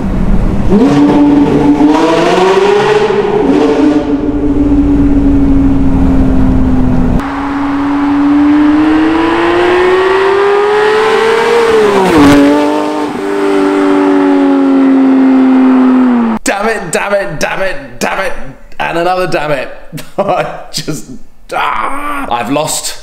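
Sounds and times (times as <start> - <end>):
sports car engine accelerating: 0.0 - 16.4
exhaust crackle: 3.2 - 16.4.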